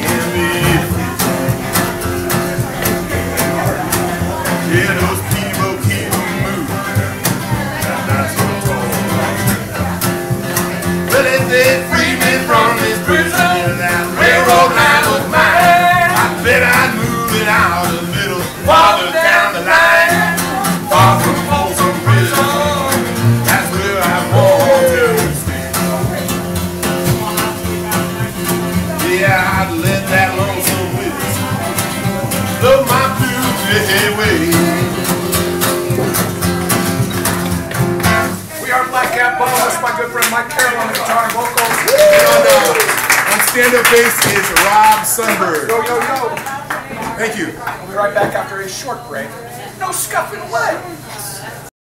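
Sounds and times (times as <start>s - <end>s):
man singing: 0.0s - 9.8s, 11.0s - 25.7s, 27.2s - 36.2s
plucked upright bass: 0.0s - 38.6s
strummed acoustic guitar: 0.0s - 45.6s.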